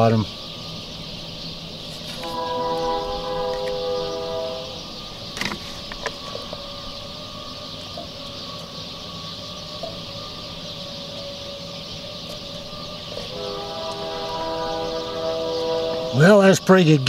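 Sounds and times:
faint steady hum: 0.0 - 16.5
steady hiss: 0.0 - 17.0.

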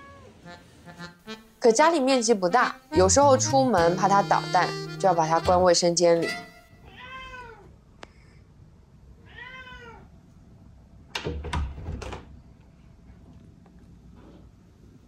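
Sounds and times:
cat meowing: 0.0 - 0.6, 6.8 - 7.8, 9.2 - 10.1.

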